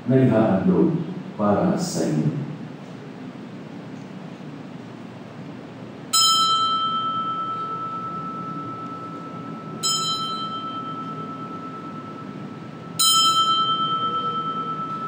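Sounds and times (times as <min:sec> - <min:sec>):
altar bell ringing: 0:06.1 - 0:15.0.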